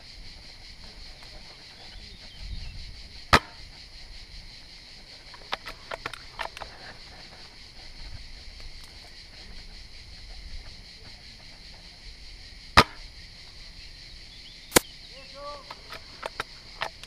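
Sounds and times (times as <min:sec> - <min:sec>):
steady high hiss: 0:00.0 - 0:17.0
airsoft rifle cracks: 0:14.7 - 0:14.9.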